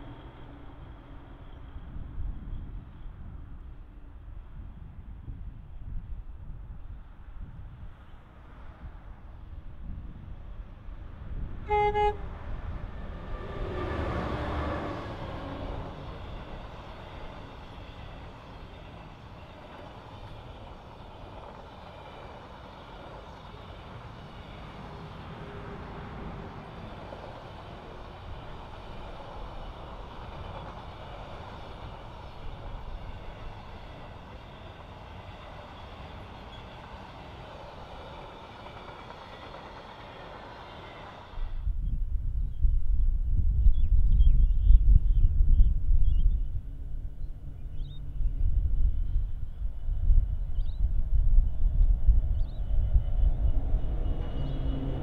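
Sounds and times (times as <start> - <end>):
train wheels on rails: 12.4 - 41.7, 48.8 - 55.0.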